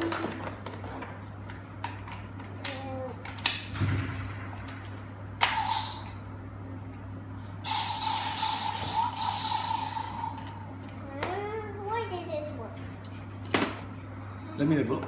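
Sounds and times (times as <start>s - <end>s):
plastic toy clicking and snapping: 1.8s - 3.6s.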